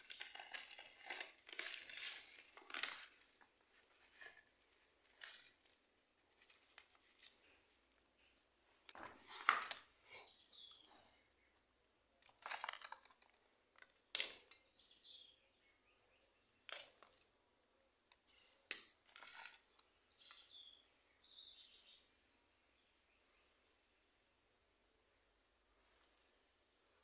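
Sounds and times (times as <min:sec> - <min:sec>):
objects clicking on tile floor: 0:00.0 - 0:07.4, 0:08.9 - 0:09.9, 0:12.2 - 0:14.6, 0:16.7 - 0:17.2, 0:18.7 - 0:20.4
faint bird chirps: 0:07.4 - 0:11.8, 0:13.8 - 0:17.2, 0:18.1 - 0:18.7, 0:19.4 - 0:24.4.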